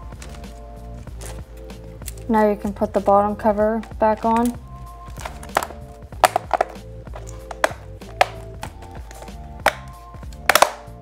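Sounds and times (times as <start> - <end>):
background music: 0.0 - 11.0
plastic cover snapping into place: 3.8 - 11.0.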